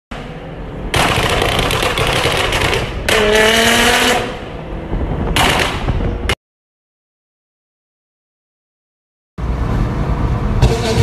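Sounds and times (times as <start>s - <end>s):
engine note rising: 9.4s - 11.0s.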